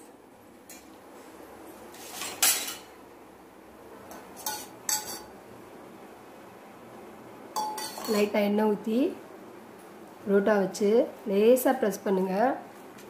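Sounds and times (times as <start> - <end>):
metal kitchenware clanking: 2.1 - 2.9, 4.1 - 5.3, 7.6 - 8.3.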